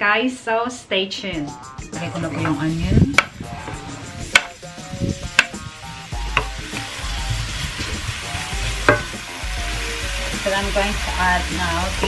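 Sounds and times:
onion sizzling in oil: 0:02.7 - 0:12.0
wooden board knocking on pan: 0:03.2 - 0:03.4, 0:04.3 - 0:04.6, 0:05.3 - 0:05.6, 0:06.3 - 0:06.6, 0:08.8 - 0:09.2.

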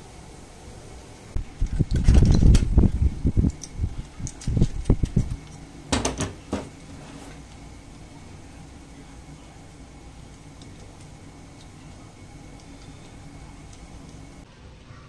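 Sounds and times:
knocks at kitchen counter: 0:05.9 - 0:06.7.

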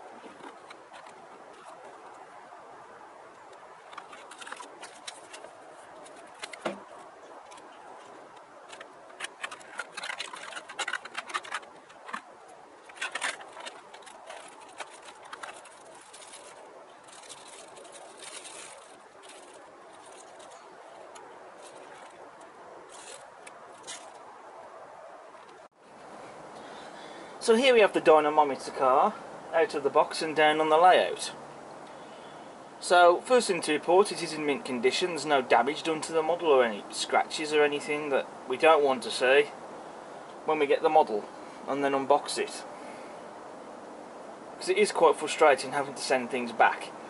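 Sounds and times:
plastic wrap rustling: 0:03.3 - 0:24.4
plastic packaging crackling: 0:03.4 - 0:24.4.

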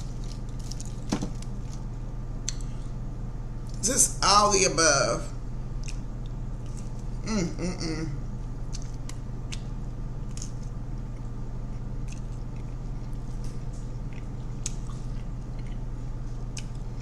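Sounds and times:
person chewing food: 0:00.0 - 0:02.9, 0:05.7 - 0:07.2, 0:08.2 - 0:17.0
steady low hum: 0:00.0 - 0:17.0.

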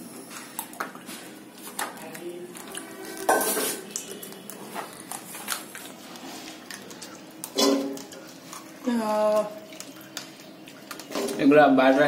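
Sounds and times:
metal utensils clinking on pan: 0:03.2 - 0:03.8.

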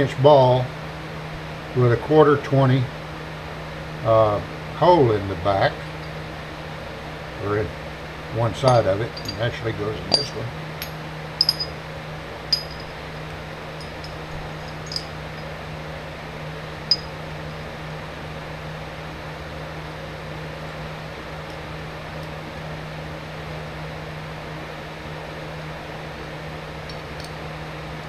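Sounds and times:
workshop hum: 0:00.0 - 0:28.0
small metallic clinks: 0:05.8 - 0:06.2, 0:08.6 - 0:11.8, 0:12.5 - 0:15.6, 0:16.9 - 0:17.6, 0:26.8 - 0:27.4.

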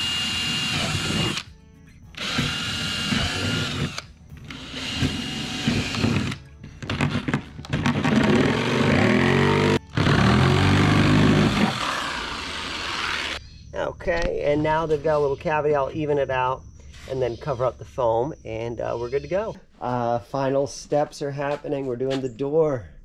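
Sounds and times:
cordless drill boring into plastic: 0:00.0 - 0:01.5, 0:02.2 - 0:06.4.

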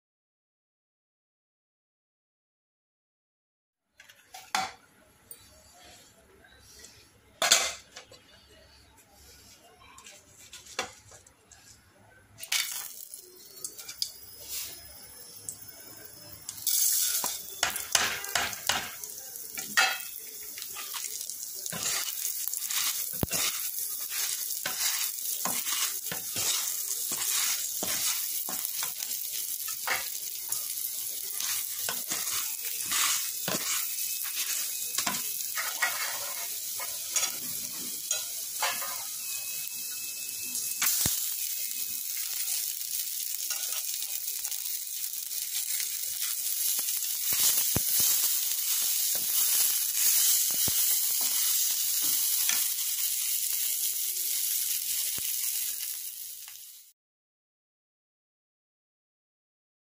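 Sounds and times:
hot oil sizzling: 0:12.4 - 0:57.0
wooden spatula knocking and scraping: 0:22.7 - 0:28.9, 0:31.4 - 0:36.4.

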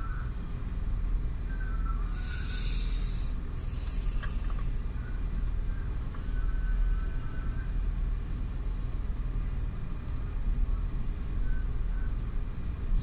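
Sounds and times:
low rumble of wind: 0:00.0 - 0:13.0
machinery rumble: 0:00.0 - 0:13.0
burst of hiss: 0:02.1 - 0:04.8.

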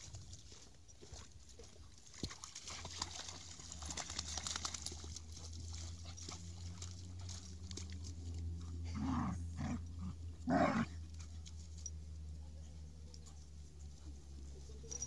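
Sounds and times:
puppies splashing in water: 0:00.0 - 0:10.4
puppy play-growl: 0:08.4 - 0:11.6.

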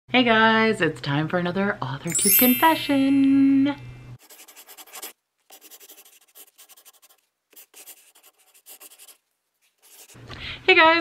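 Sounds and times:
pen scratching on paper: 0:04.2 - 0:09.2, 0:09.8 - 0:10.2.

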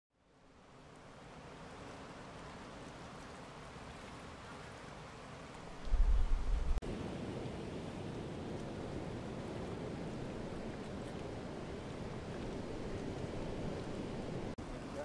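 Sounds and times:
steady rushing noise: 0:05.7 - 0:06.8
wind rumbling on microphone: 0:05.7 - 0:14.6.

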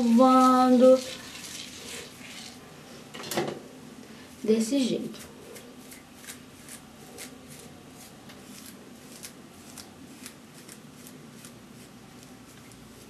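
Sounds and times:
hairbrush swishing through hair: 0:05.2 - 0:13.0.

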